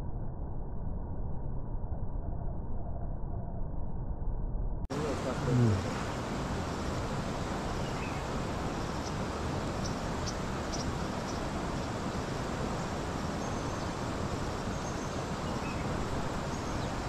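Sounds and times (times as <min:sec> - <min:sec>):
river water rushing: 0:04.9 - 0:17.0.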